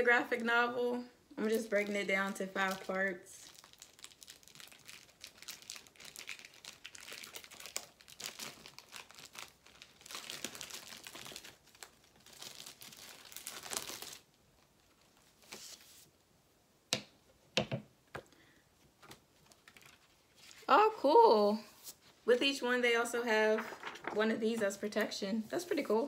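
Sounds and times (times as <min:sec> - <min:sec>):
plastic packaging crinkling and tearing: 0:01.4 - 0:15.9, 0:19.4 - 0:20.7, 0:23.5 - 0:24.3.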